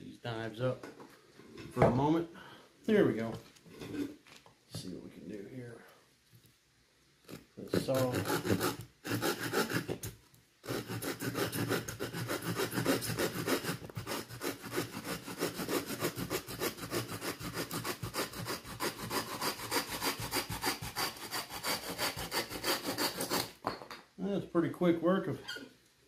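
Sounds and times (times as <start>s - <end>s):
folding saw cutting stick: 7.3s - 10.0s, 10.6s - 23.6s.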